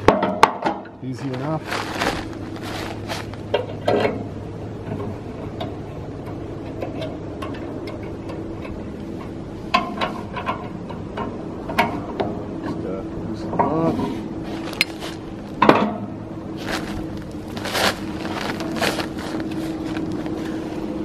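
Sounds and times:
steady low hum: 0.0 - 21.0
light metal clicks and knocks: 3.5 - 12.4.

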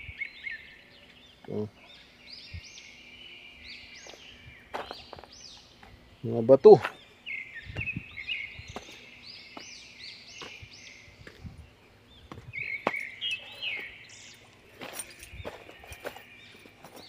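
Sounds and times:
bird whistling song: 0.0 - 17.0
footsteps on gravel: 4.0 - 5.6, 8.7 - 11.6, 12.2 - 17.0.

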